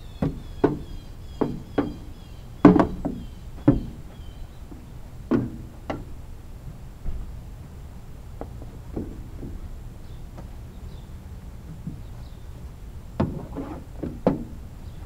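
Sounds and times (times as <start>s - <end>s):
sharp ringing knocks: 0.2s - 4.0s.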